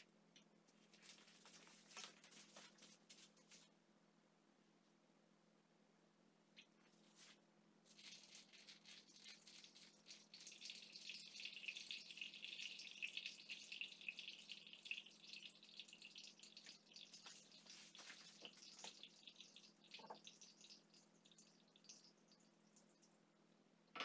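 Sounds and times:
coffee trickling into mug: 7.9s - 22.0s.

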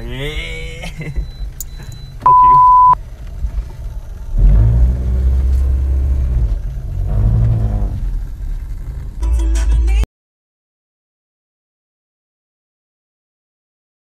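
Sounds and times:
car engine accelerating: 0.5s - 10.0s.

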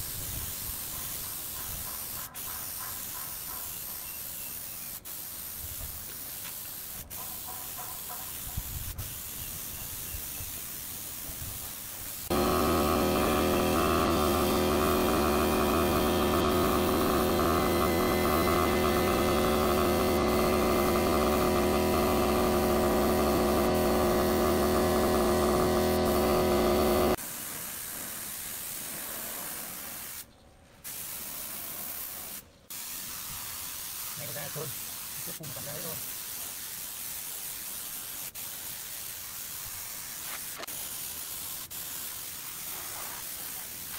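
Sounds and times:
spray gun hissing: 0.0s - 30.2s, 30.9s - 43.9s
loud machine hum: 12.3s - 27.2s.

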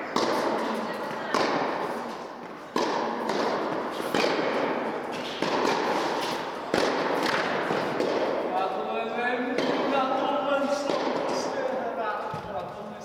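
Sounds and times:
tennis ball hit with rackets: 0.0s - 8.6s, 9.5s - 10.2s, 10.8s - 11.6s.

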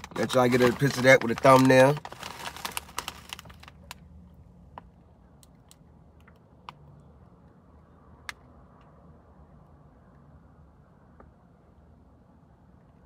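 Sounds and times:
plastic bag crinkling: 0.0s - 4.1s
low steady hum: 0.0s - 13.0s.

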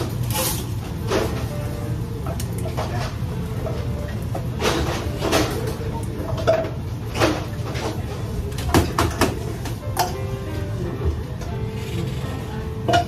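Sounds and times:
metal cookware clanking: 2.2s - 10.3s, 12.8s - 13.0s.

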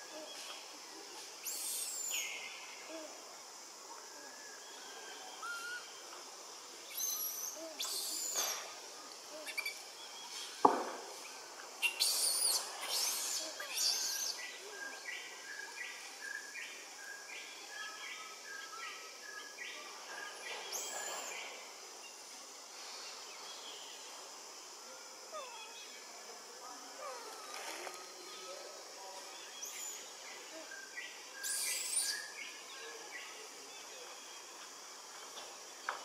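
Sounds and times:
forest birds calling: 0.0s - 3.3s, 3.9s - 24.2s, 25.2s - 34.8s
steady high hiss: 0.0s - 36.0s.

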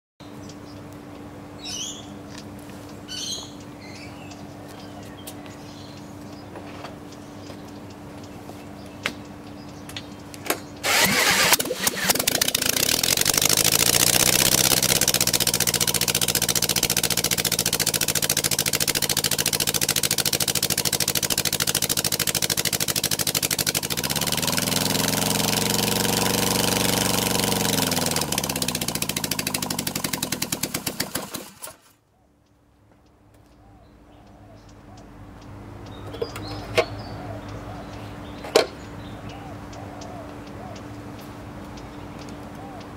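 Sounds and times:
engine running: 5.9s - 32.0s
power drill spinning engine: 10.8s - 31.9s.

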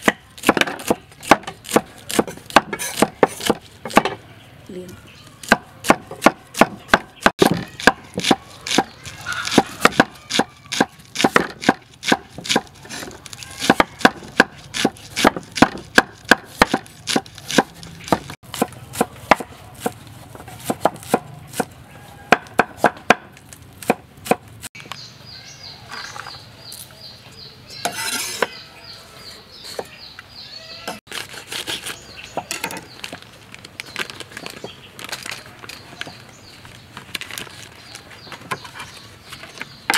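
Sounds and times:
knife chopping on wooden board: 0.0s - 4.2s, 5.4s - 21.7s, 22.3s - 24.4s.

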